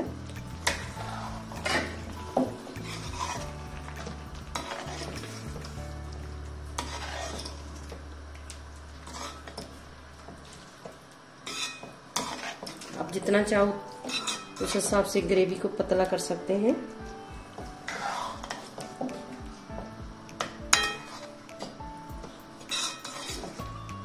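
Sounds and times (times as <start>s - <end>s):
curry sizzling: 0.0s - 24.0s
metal spatula scraping pan: 0.6s - 3.6s, 4.5s - 5.8s, 6.8s - 7.9s, 9.0s - 9.8s, 11.4s - 13.0s, 14.0s - 14.9s, 17.8s - 18.8s, 20.8s - 21.4s, 22.6s - 23.7s.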